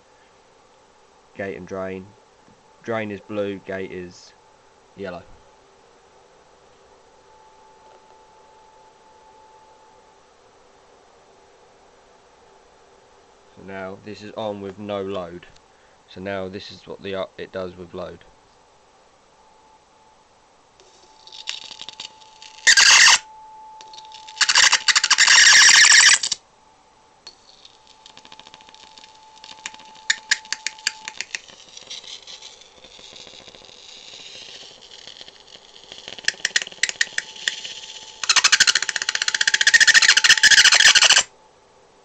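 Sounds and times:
faint steady tone: 0.0 - 42.0
electric arc crackling and hissing: 20.8 - 23.2, 27.4 - 41.3
sharp crackling snaps: 27.5 - 39.7.

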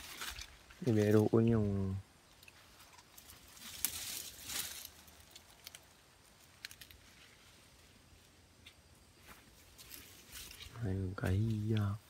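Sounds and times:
twigs snapping: 0.0 - 1.2, 2.3 - 7.1
leaves and twigs rustling: 0.0 - 12.0.

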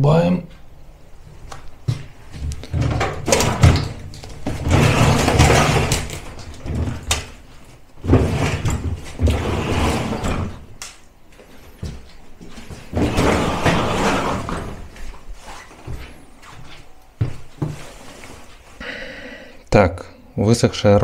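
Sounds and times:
metal knocks and rattles: 2.4 - 10.7
cooker scraping along floor: 2.9 - 7.2, 8.0 - 10.7, 12.7 - 15.8.

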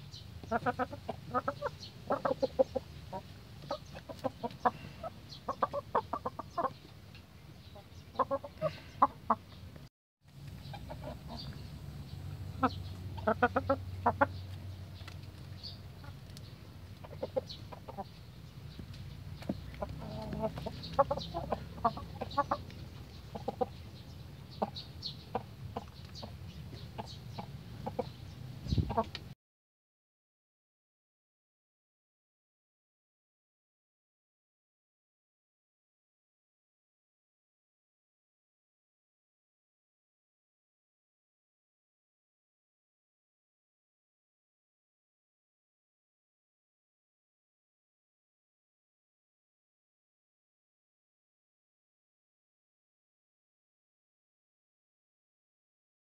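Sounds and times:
hens and roosters clucking: 0.1 - 9.8, 10.4 - 29.4.

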